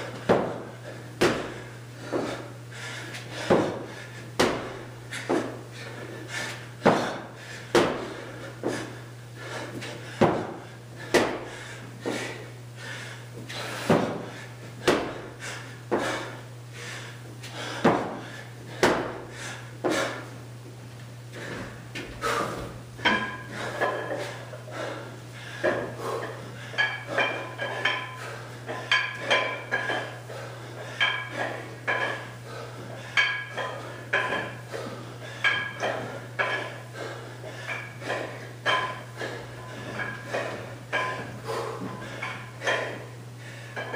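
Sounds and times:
steady low hum: 0.0s - 43.9s
kettlebell metallic clink: 39.9s - 41.3s.

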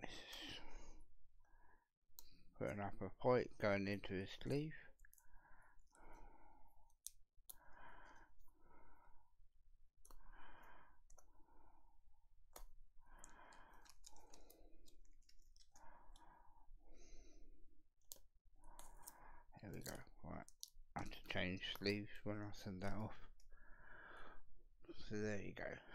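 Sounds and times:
light clicks of card and plastic: 12.5s - 16.3s, 18.0s - 22.0s.

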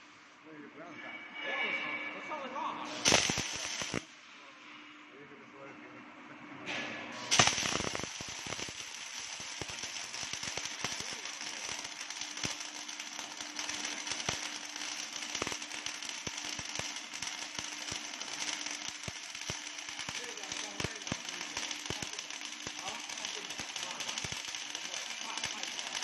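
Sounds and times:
welding arcs crackling: 2.9s - 4.1s, 7.2s - 26.0s.

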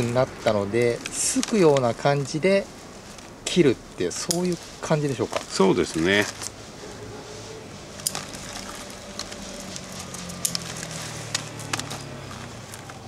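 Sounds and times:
scissors snipping twigs: 8.0s - 13.0s.

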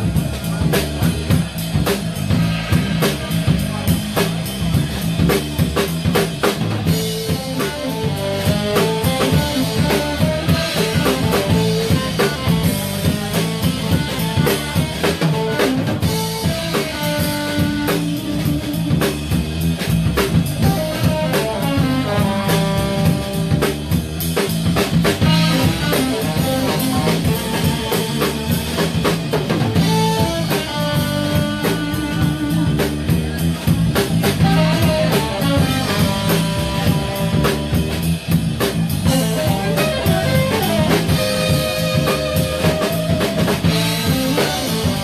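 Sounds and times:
drum kit beat: 0.0s - 45.0s
electric bass: 0.0s - 45.0s
guitar: 0.0s - 45.0s
saxophone melody: 6.9s - 19.0s, 20.6s - 23.9s, 25.1s - 33.2s, 34.3s - 37.9s, 39.1s - 45.0s.

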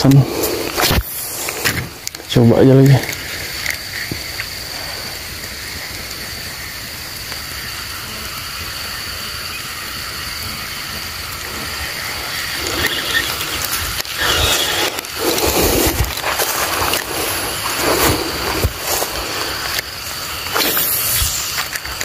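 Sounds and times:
fishing reel gears whirring: 3.0s - 22.0s
rough rustling: 11.1s - 22.0s.

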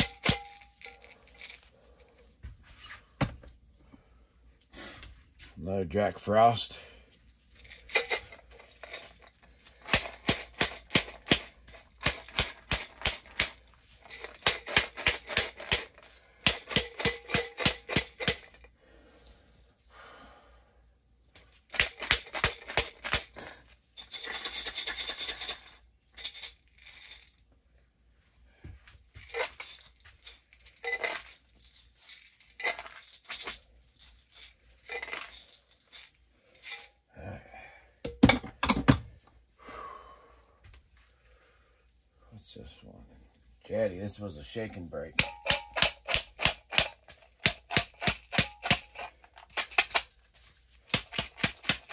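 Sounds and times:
grain rattling in shaken glass jar: 24.0s - 27.4s, 29.2s - 36.9s.

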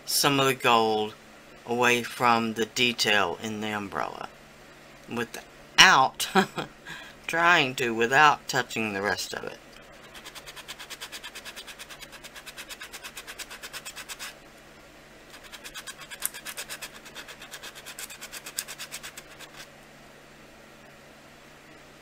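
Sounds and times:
sanding block rasping on clay: 10.0s - 14.4s, 15.3s - 19.7s.

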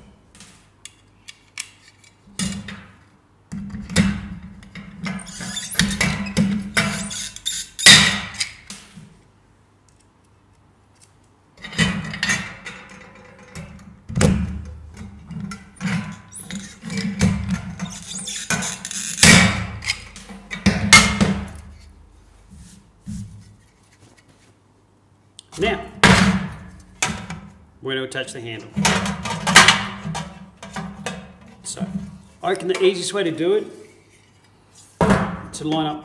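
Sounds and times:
metallic knocks and scrapes: 4.8s - 8.6s.

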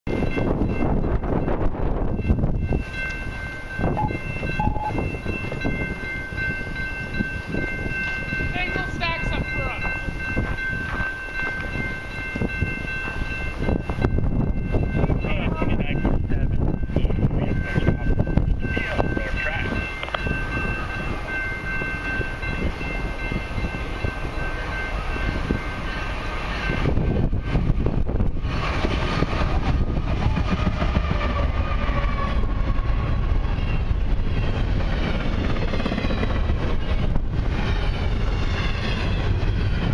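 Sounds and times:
steady high tones: 0.1s - 28.3s
distant freight train rumble: 0.1s - 39.9s
diesel locomotive horn chord: 3.9s - 5.0s, 31.0s - 33.0s
short tones: 3.9s - 5.2s.

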